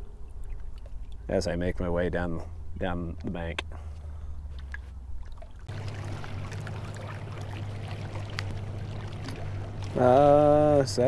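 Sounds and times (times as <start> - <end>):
small waves lapping on rocks: 5.3 - 11.0.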